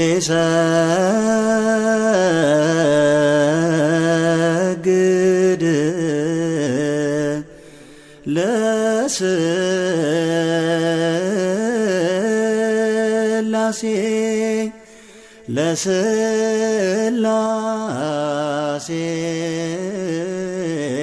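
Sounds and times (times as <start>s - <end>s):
man chanting a hymn: 0.0s - 7.5s.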